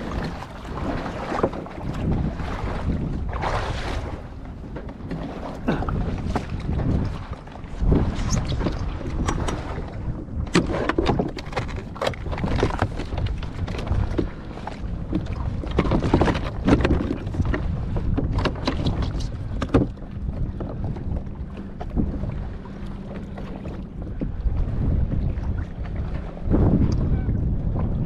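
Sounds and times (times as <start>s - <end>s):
knocks and clatter on boat: 0.0s - 28.0s
steady low rumble: 19.0s - 28.0s.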